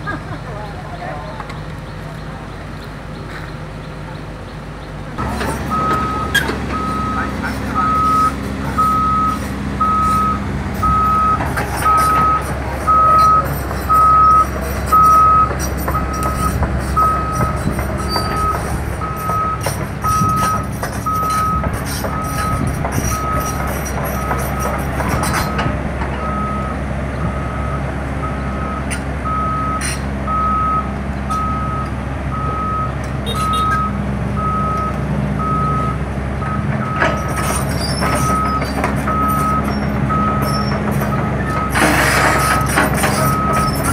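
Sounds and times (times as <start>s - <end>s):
diesel engine running: 0.0s - 43.9s
backup alarm beeping: 5.2s - 23.6s, 26.2s - 37.1s, 38.2s - 41.8s, 42.6s - 43.9s.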